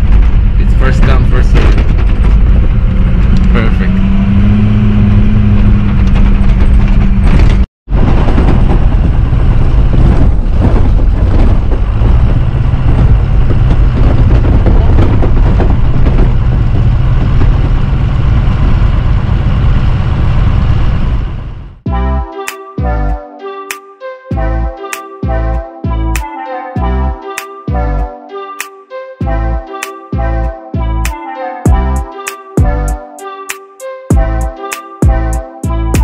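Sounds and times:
engine running under load: 0:00.0 - 0:21.8.

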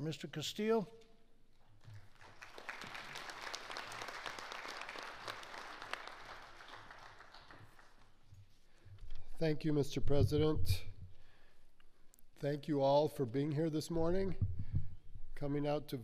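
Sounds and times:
audience applauding: 0:01.9 - 0:08.3.

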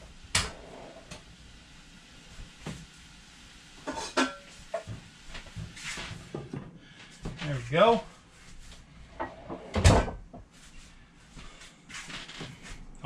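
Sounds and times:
cookware knocking and clanking: 0:03.9 - 0:04.9.

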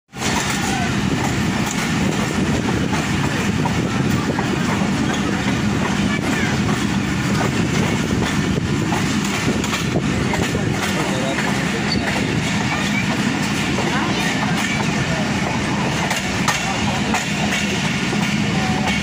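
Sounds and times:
train wheels rumbling on rails: 0:00.1 - 0:19.0.

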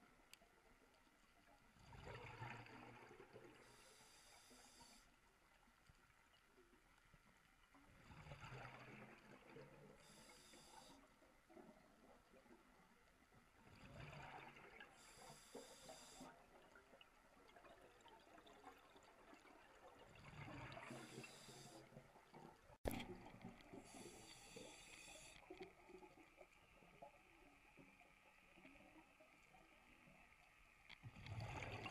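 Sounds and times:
diver breathing through regulator: 0:20.8 - 0:21.9, 0:23.7 - 0:25.5
exhaled air bubbling: 0:31.0 - 0:31.9.

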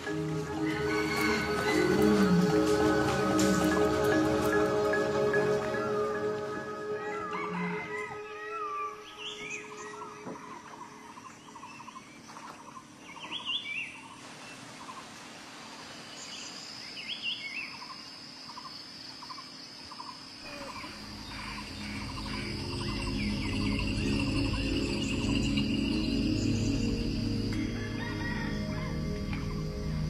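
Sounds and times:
background music: 0:00.0 - 0:09.2, 0:20.6 - 0:30.0
high insect drone: 0:00.0 - 0:10.8, 0:16.4 - 0:30.0.

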